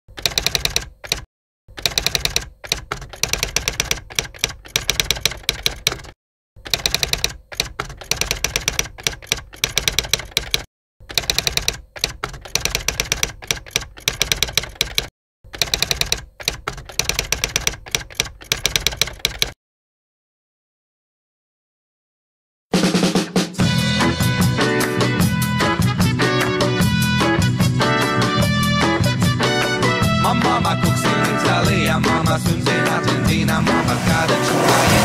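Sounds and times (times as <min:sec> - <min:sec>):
rapid typing key clicks: 0:00.1 - 0:19.6.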